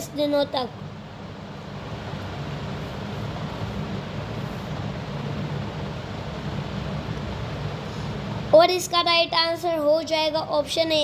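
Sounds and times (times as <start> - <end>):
low rumbling with hiss: 0.0 - 11.0.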